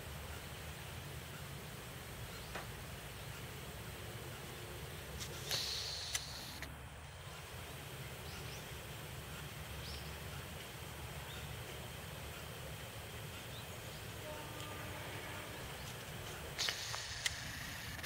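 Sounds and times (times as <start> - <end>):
low rumble and hiss: 0.0 - 18.0
faint bird chirps: 2.2 - 3.4, 9.7 - 10.4.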